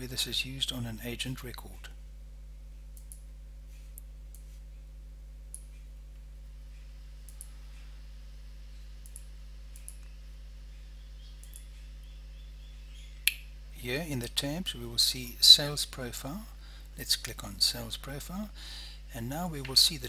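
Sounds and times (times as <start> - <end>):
low electrical hum: 0.0 - 20.0
computer mouse clicks: 3.0 - 3.2, 7.3 - 7.5, 9.0 - 10.1, 11.4 - 11.7.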